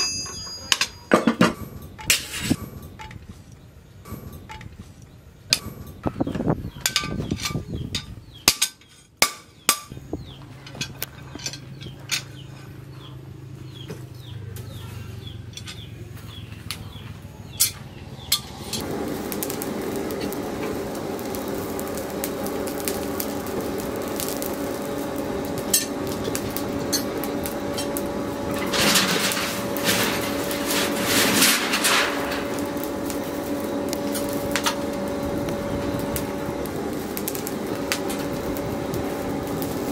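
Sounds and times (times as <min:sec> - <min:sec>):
metal tongs clinking: 0:00.0 - 0:03.0
forge blower humming: 0:00.0 - 0:39.9
rush of fire noise: 0:18.2 - 0:39.9.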